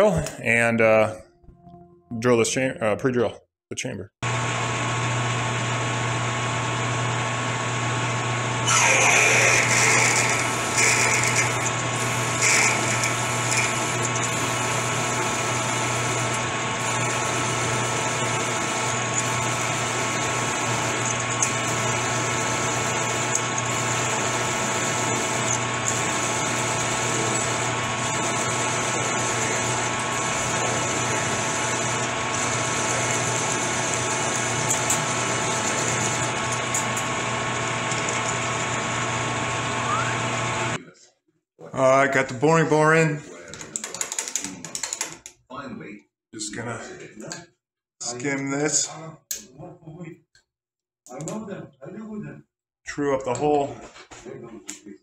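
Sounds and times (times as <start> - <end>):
drill cutting metal: 8.6 - 40.8
metal lathe running: 8.6 - 40.8.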